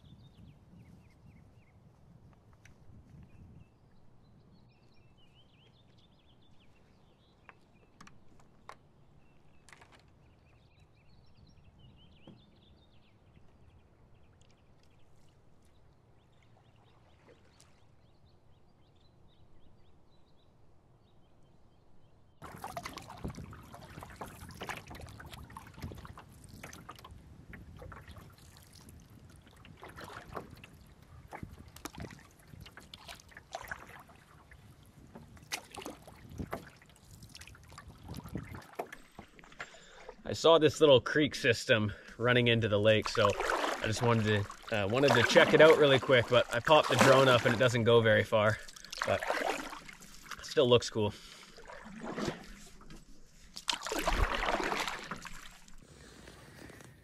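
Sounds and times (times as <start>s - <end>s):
canoe paddle splashing water: 15.2s - 18.1s, 22.4s - 57.0s.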